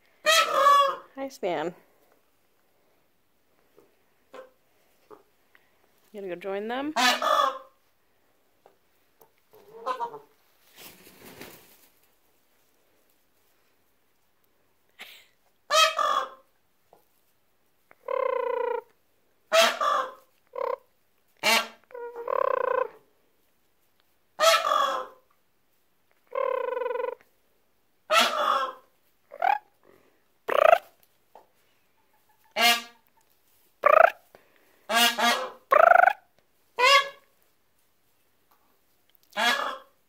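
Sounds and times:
peafowl alarm honks: 0:32.5 - 0:33.0, 0:34.9 - 0:36.2, 0:36.8 - 0:37.2.

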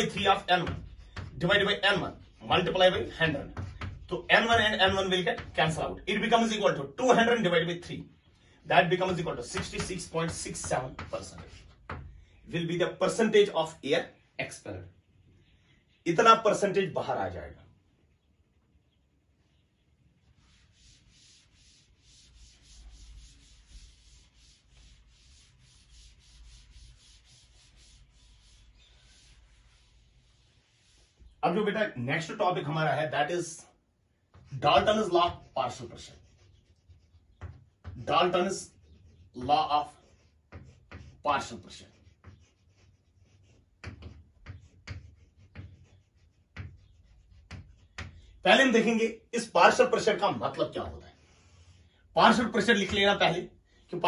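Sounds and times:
eraser scrubbing chalkboard: 0:00.0 - 0:07.4, 0:08.8 - 0:12.2, 0:20.2 - 0:31.7, 0:34.2 - 0:49.0, 0:49.7 - 0:53.3.

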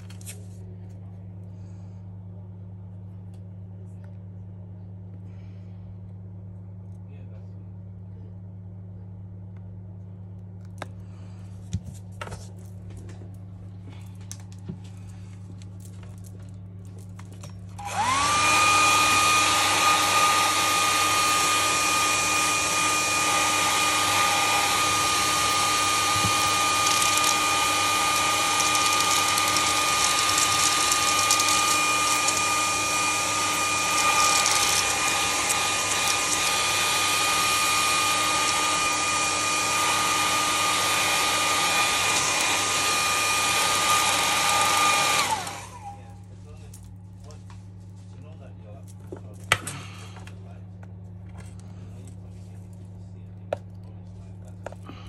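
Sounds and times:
hair dryer blowing: 0:17.8 - 0:46.1.

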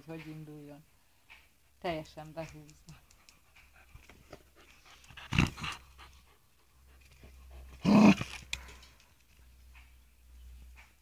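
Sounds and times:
dog breathing hard: 0:02.9 - 0:07.8.

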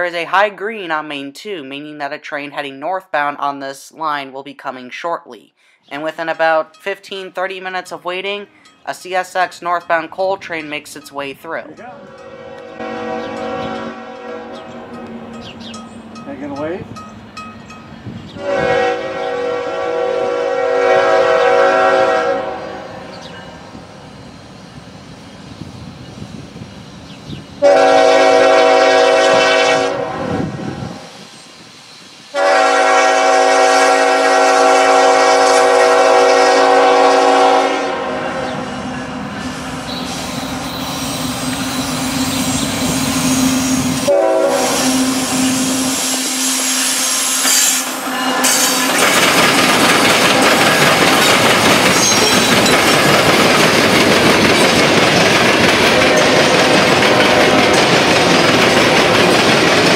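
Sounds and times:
train cars rumbling and clattering: 0:08.6 - 0:59.9
locomotive horn blasts: 0:12.0 - 0:15.1, 0:18.4 - 0:23.0, 0:27.6 - 0:31.0, 0:32.4 - 0:38.6, 0:43.2 - 0:48.9.

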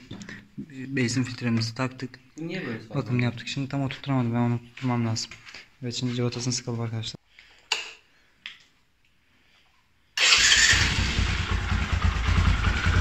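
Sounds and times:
motorcycle engine running: 0:10.8 - 0:13.0.

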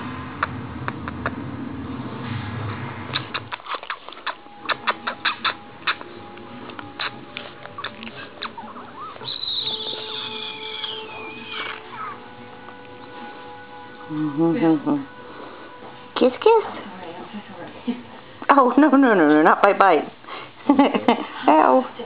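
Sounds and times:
puppy mouth clicks and smacks: 0:00.4 - 0:01.4, 0:03.1 - 0:09.3
puppy whining: 0:03.2 - 0:13.3.

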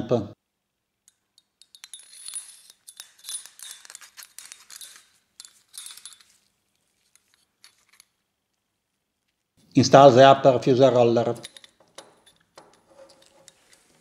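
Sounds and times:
metallic clinks and scraping: 0:01.0 - 0:08.3, 0:11.3 - 0:14.0.

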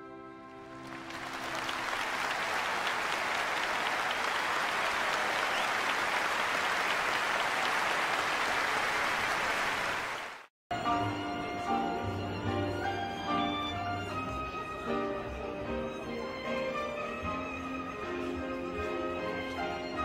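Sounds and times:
audience applauding: 0:00.7 - 0:10.5
orchestral music: 0:10.7 - 0:20.0.

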